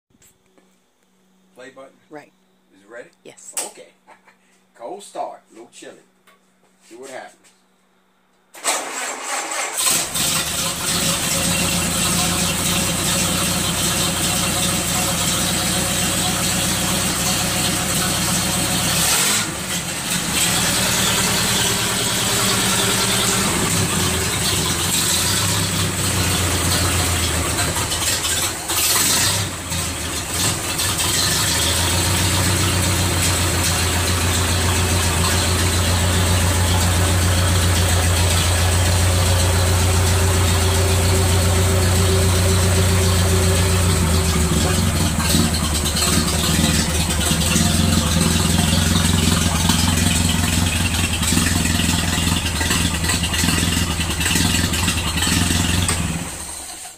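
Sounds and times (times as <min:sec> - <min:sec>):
car engine idling: 0:09.8 - 0:56.9.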